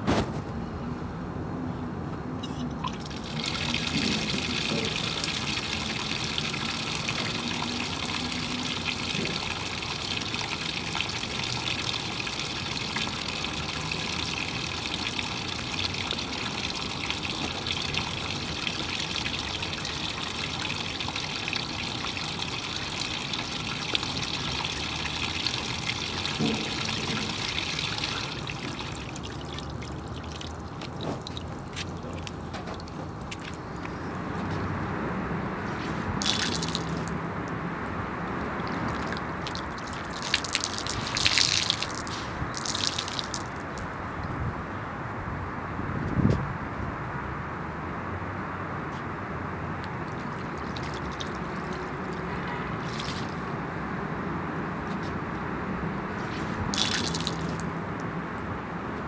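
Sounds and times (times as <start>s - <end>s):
tap water running into a basin: 2.8s - 33.8s, 36.2s - 37.3s, 38.6s - 43.9s, 49.8s - 53.5s, 56.7s - 57.8s.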